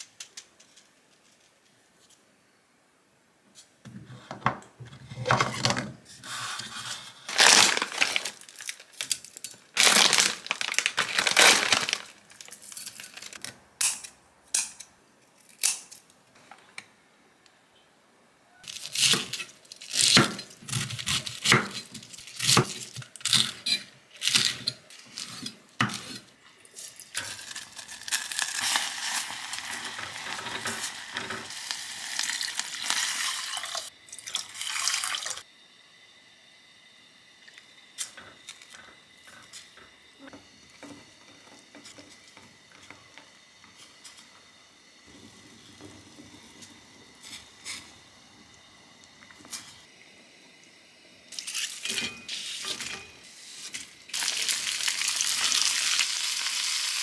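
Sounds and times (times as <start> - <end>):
water pouring into a pot: 26.9 - 35.4, 54.1 - 57.0.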